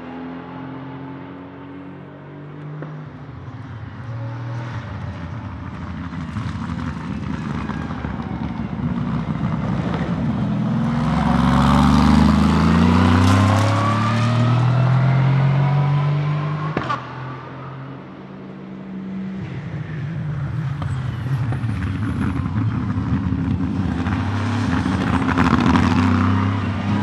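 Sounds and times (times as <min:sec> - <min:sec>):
race car engine accelerating: 0:07.4 - 0:17.2.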